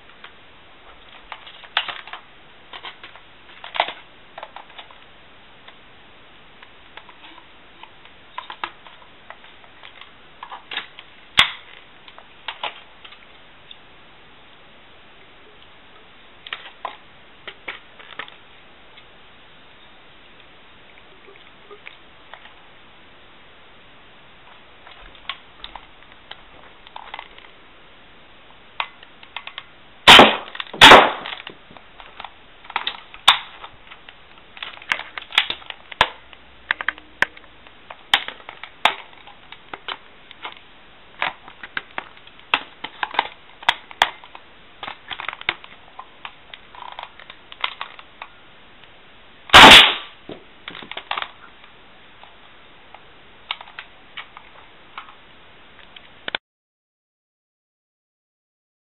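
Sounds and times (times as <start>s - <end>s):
toy blaster firing pops: 30.1s - 31.4s, 49.5s - 50.2s.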